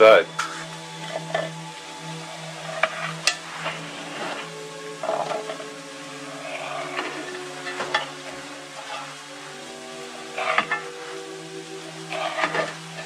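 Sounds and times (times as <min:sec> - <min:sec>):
food sizzling: 0:00.0 - 0:13.0
soft background music: 0:00.0 - 0:13.0
utensil scraping metal: 0:10.3 - 0:11.2, 0:12.0 - 0:13.0.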